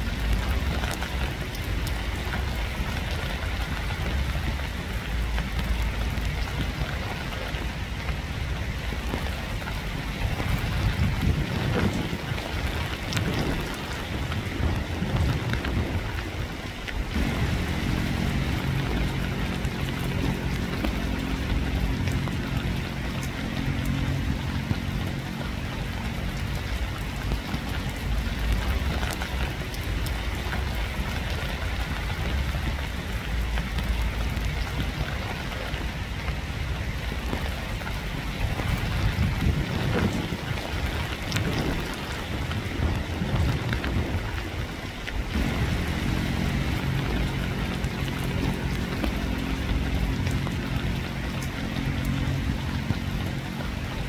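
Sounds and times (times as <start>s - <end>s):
steady rain: 0.0s - 54.0s
low droning hum: 17.0s - 36.0s, 45.3s - 54.0s.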